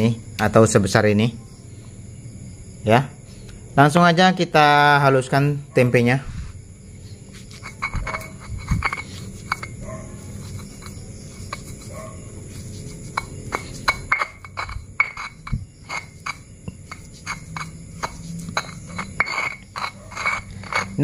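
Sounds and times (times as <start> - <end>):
stone pestle knocking and scraping: 7.3 - 21.0.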